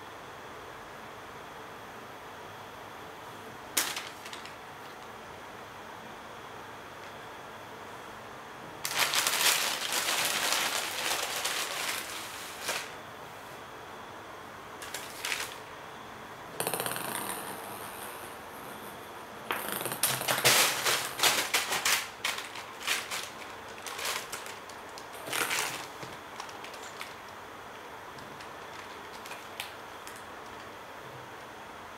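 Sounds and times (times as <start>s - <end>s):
plastic bag crinkling: 3.8s - 5.0s, 8.8s - 13.0s, 14.8s - 15.7s, 20.0s - 27.4s, 28.1s - 30.7s
ping-pong ball rolling on wooden floor: 16.6s - 18.2s, 19.5s - 20.3s.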